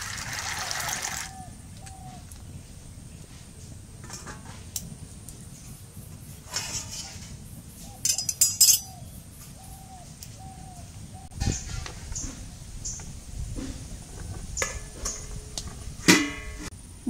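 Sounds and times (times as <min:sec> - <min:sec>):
bird calling: 0:00.4 - 0:03.0, 0:06.8 - 0:13.2
ladle clinking on metal dish: 0:08.0 - 0:08.9.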